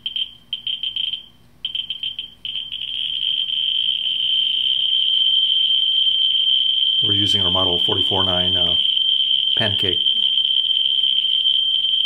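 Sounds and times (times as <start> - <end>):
steady high meter tone: 0.0 - 12.0.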